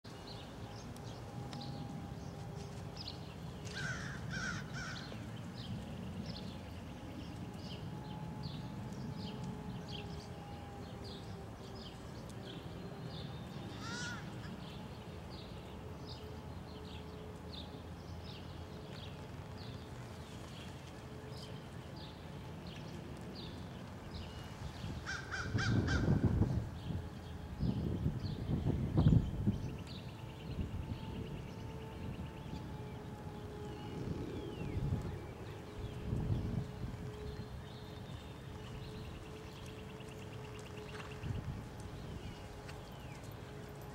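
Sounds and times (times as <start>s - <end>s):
low background hum: 0.1s - 43.9s
crows cawing: 3.7s - 5.1s, 13.8s - 14.3s, 25.0s - 26.2s.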